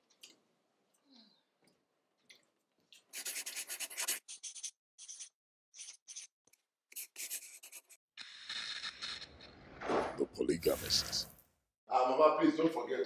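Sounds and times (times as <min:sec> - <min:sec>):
pen nib scratching on paper: 0:03.1 - 0:06.3, 0:06.9 - 0:09.3.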